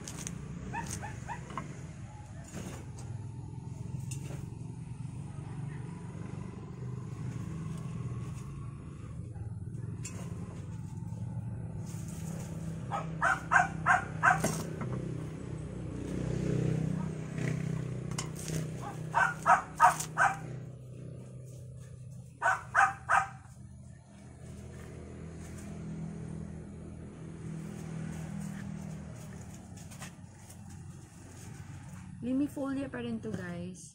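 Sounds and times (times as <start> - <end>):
steady low hum: 0.0 - 33.9
dog barking: 12.9 - 14.5, 18.8 - 20.6, 22.4 - 23.5.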